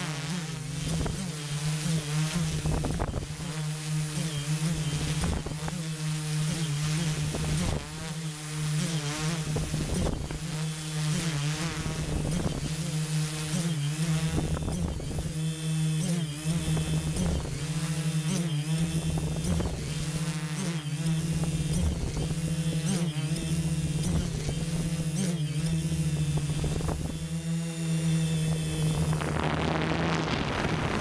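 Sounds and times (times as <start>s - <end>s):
quadcopter motors buzzing: 0.0s - 31.0s
wind over microphone: 2.4s - 3.4s, 9.5s - 10.4s, 12.0s - 12.8s, 14.3s - 15.3s, 26.2s - 27.3s, 28.5s - 31.0s.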